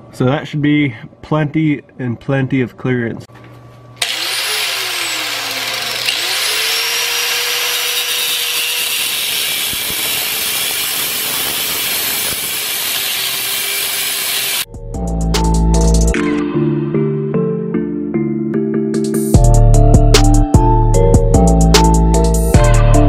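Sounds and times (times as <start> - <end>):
angle grinder cutting steel: 4.0 - 14.7
music: 14.7 - 23.0.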